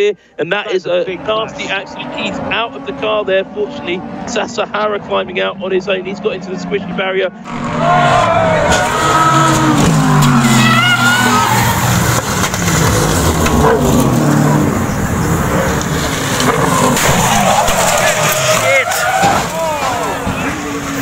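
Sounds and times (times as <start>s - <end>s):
race car engines passing: 0.5s - 21.0s
tyre squeals: 13.7s - 21.0s.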